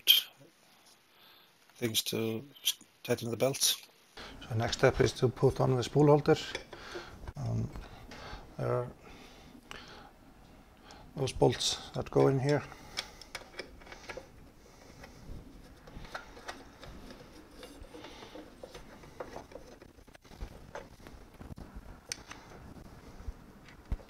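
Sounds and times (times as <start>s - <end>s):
hands handling metal parts: 11.5s - 22.4s.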